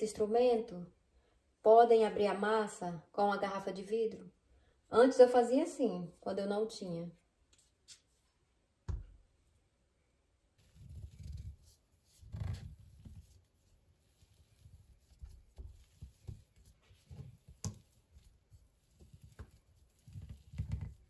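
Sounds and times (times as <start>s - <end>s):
rolling pin rumbling over dough: 10.6s - 21.0s.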